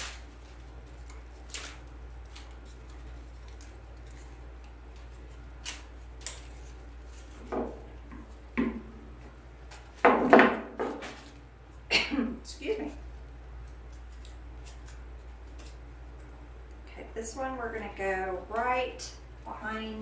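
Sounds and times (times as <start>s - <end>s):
leaves rustling: 0.0s - 7.5s.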